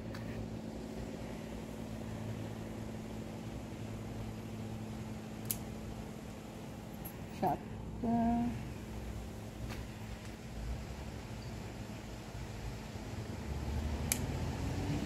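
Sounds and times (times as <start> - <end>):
low machine hum: 0.0 - 15.0
scissors snipping a stem: 5.4 - 5.7, 14.0 - 14.3.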